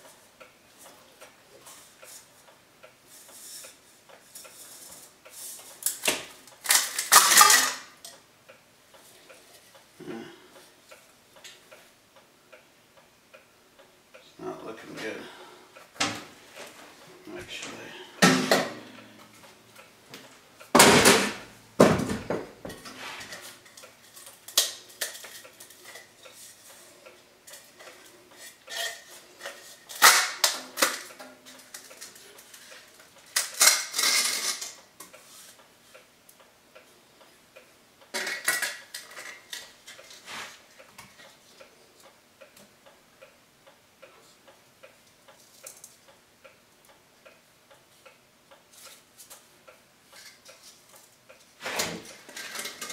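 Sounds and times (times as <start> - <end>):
sheet metal pipe parts clattering: 6.6 - 8.0, 27.5 - 32.6, 33.4 - 34.8, 51.6 - 52.9.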